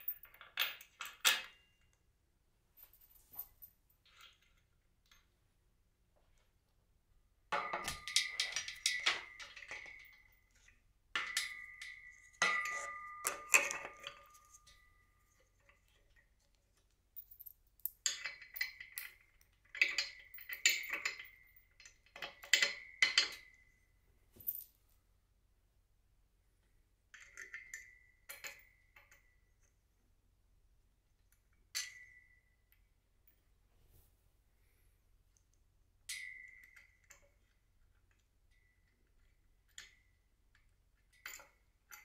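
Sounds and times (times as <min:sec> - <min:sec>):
metal hardware clinking: 0:07.6 - 0:10.6.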